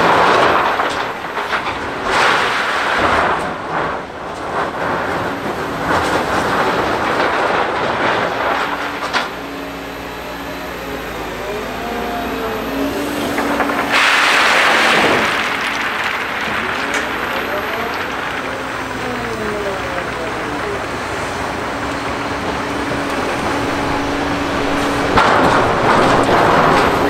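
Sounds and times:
hydraulic hum and whine: 0.0s - 27.0s
stone pouring onto stockpile: 13.3s - 27.0s
stones rattling and scraping: 13.3s - 27.0s.

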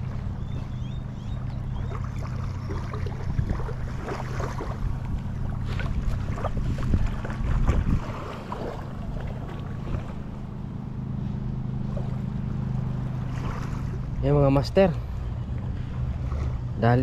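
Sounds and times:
low engine drone: 0.0s - 17.0s
wind noise: 3.0s - 10.3s.

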